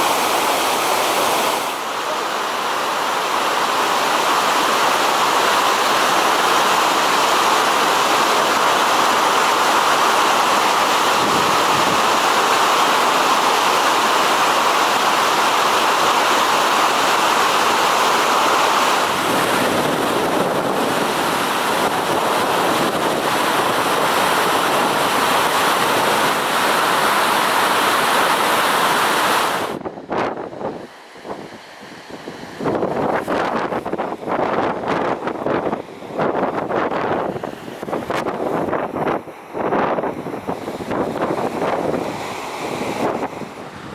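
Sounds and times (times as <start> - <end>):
ice avalanche roaring: 0.0 - 29.8.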